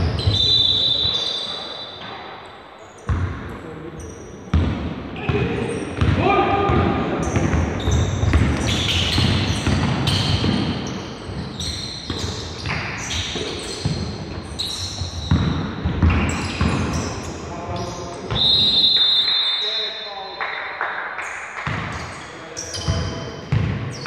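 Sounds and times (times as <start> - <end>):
sneakers squeaking: 0.0 - 20.0, 21.6 - 24.0
basketball bouncing: 6.0 - 17.1, 21.6 - 22.1, 22.8 - 24.0.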